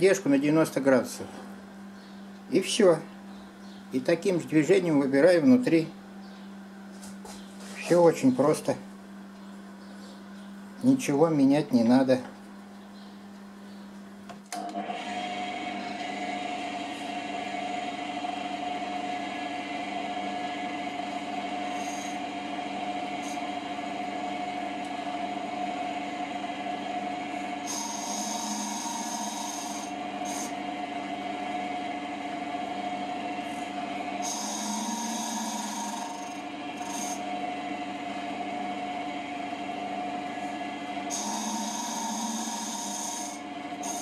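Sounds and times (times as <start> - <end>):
wood lathe motor hum: 14.6 - 39.0, 40.0 - 44.0
cutter scraping spinning wood: 21.0 - 22.4, 23.1 - 23.5, 27.4 - 30.6, 33.4 - 37.4, 41.1 - 44.0.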